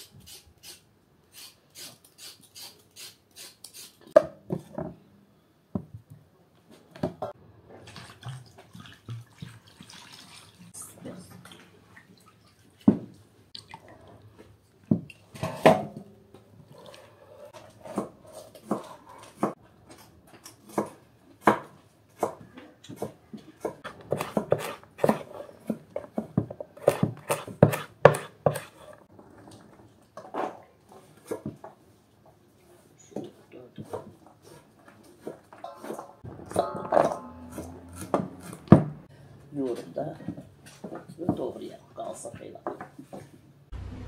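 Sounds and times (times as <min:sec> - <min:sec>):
knives chopping on wooden boards: 0:20.6 - 0:28.8.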